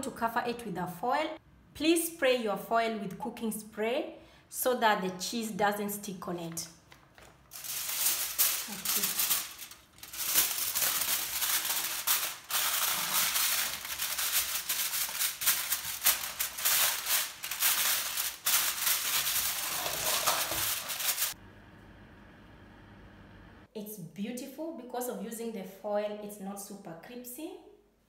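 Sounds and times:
aluminium foil crinkling: 6.8 - 21.4.

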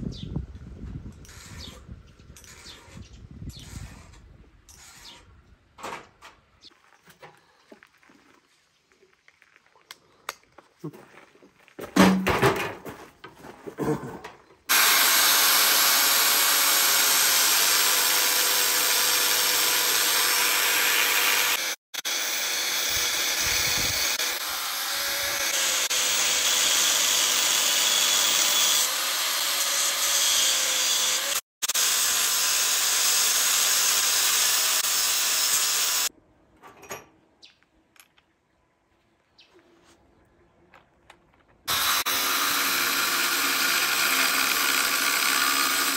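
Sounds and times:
angle grinder cutting steel: 14.7 - 36.1, 41.7 - 45.9.

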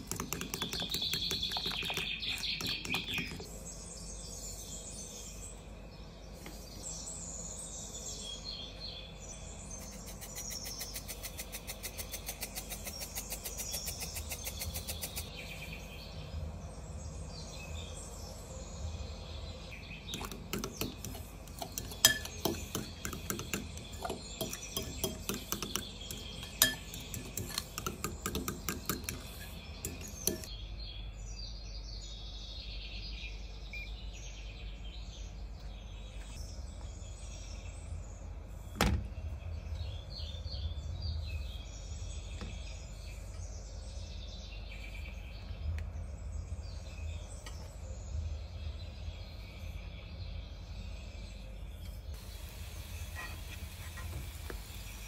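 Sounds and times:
fork clinking against glass bowl: 21.8 - 22.5, 26.4 - 27.6
eggplant frying in oil: 52.2 - 55.0.

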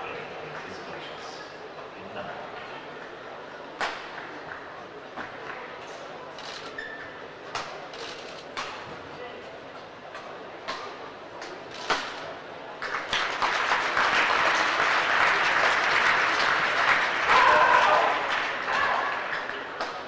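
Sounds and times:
crowd applauding and cheering: 12.8 - 19.8.

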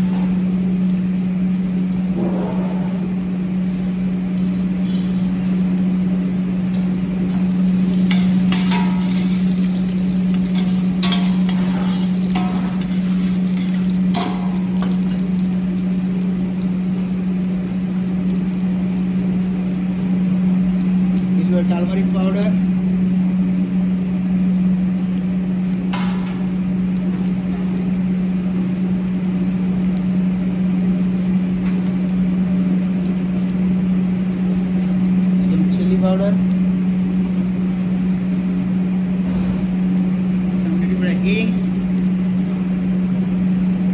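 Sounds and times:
low hum: 0.0 - 21.4
food frying in oil: 0.0 - 43.9
loud low hum: 0.0 - 43.9.

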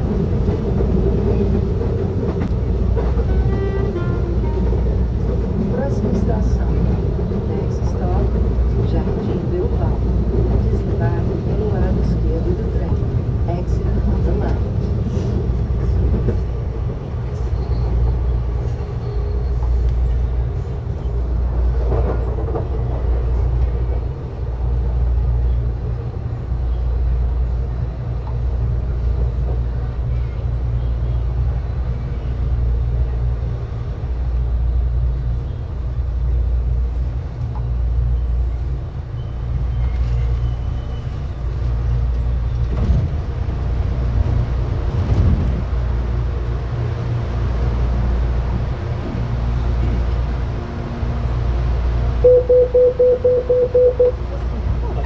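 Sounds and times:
electric train rumbling: 0.0 - 55.0.

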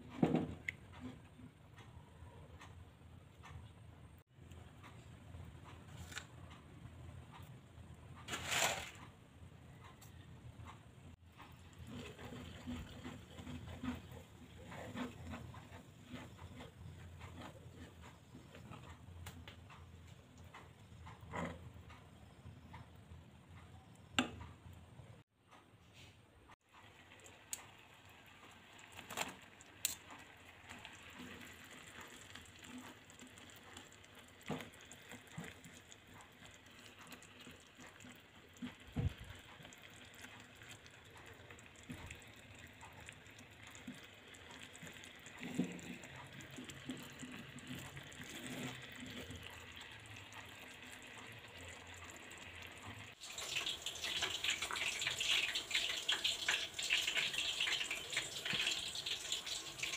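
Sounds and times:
sauce bubbling and crackling: 9.9 - 23.0, 26.6 - 59.9.

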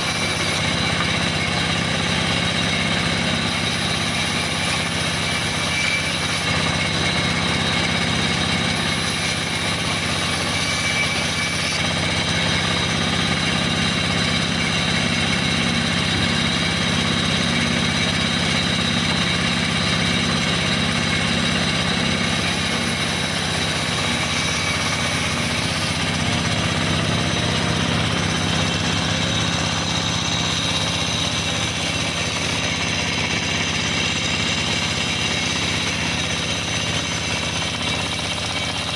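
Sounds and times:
band saw mechanical drone: 0.0 - 38.9.

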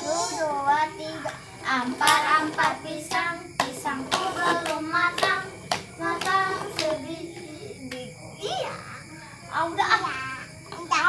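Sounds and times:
children singing a chant: 0.0 - 11.0
hand clapping and slapping: 1.2 - 8.1.

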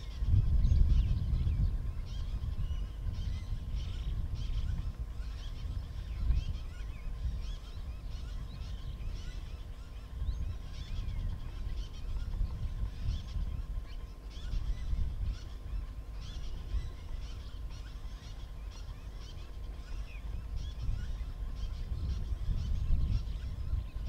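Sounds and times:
birds chirping and calling: 0.0 - 24.0
low steady rumble: 0.0 - 24.0.

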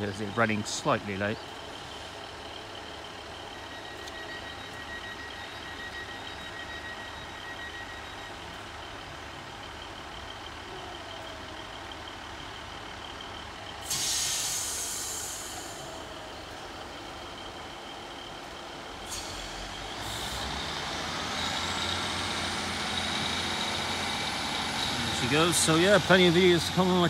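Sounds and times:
diesel train engine hum: 0.0 - 27.0
air brake hiss: 13.8 - 16.0, 19.0 - 20.4.

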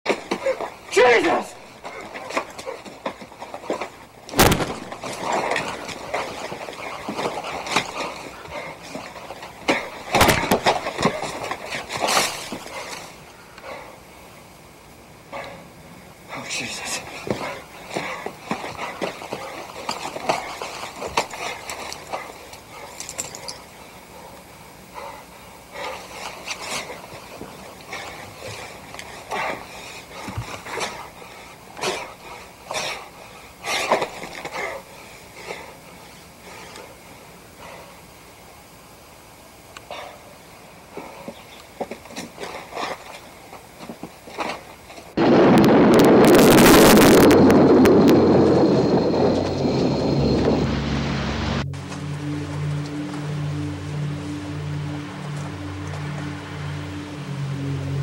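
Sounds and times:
loud thud: 4.4 - 5.0.

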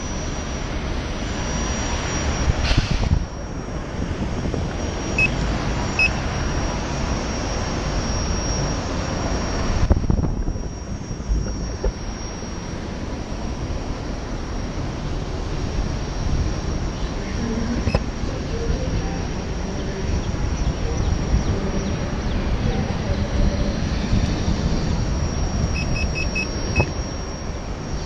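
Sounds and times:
thin high steady tone: 0.0 - 28.0
wind rushing over microphone: 0.0 - 28.0
short beeps: 4.8 - 6.6, 17.7 - 18.0, 25.1 - 28.0.

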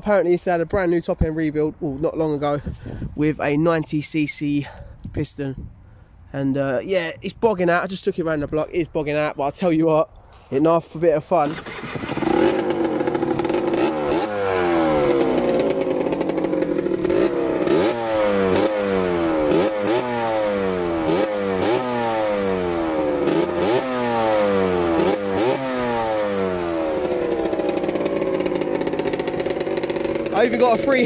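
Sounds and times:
dirt bike engine revving: 11.4 - 31.0.

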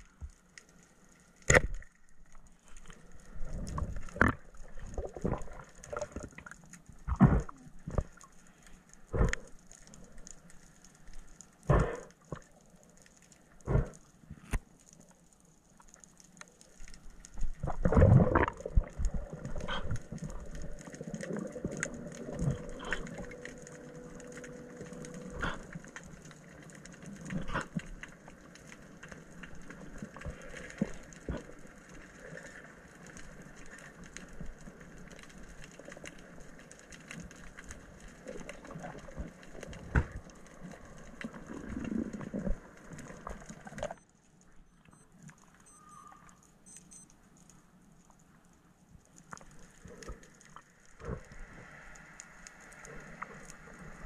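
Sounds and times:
underwater clicks and knocks: 3.6 - 8.2.

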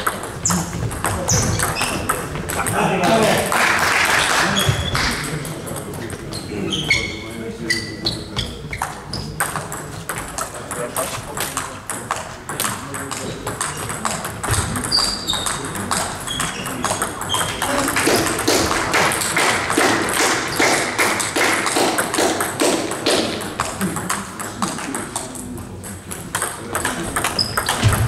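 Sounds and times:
table tennis balls clicking: 0.0 - 2.9, 8.4 - 28.0.

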